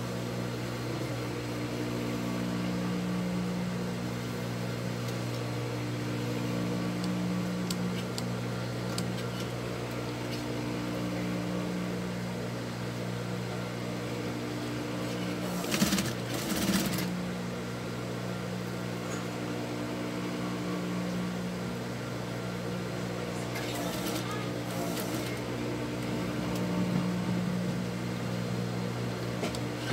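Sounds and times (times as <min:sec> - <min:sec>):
sewing machine motor humming: 0:15.0 - 0:17.2, 0:23.5 - 0:27.2
sewing machine stitching: 0:15.4 - 0:17.1, 0:23.6 - 0:25.4.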